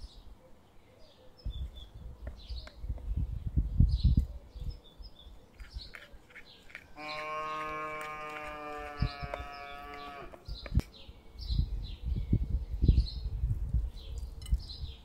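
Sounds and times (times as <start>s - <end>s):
small birds chirping: 0.0s - 15.0s
cow mooing: 7.0s - 10.4s.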